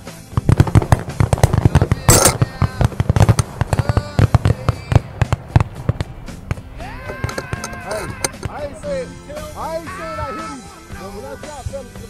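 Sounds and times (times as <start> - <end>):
background music with singing: 0.0 - 12.0
shotgun fire: 0.3 - 9.2
loud close shotgun blast: 0.3 - 9.7.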